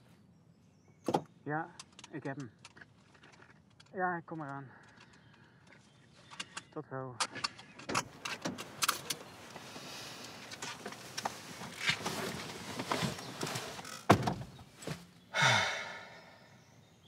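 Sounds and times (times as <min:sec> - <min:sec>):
rustling and small knocks: 0:01.0 - 0:15.2
car door shutting: 0:10.5 - 0:15.0.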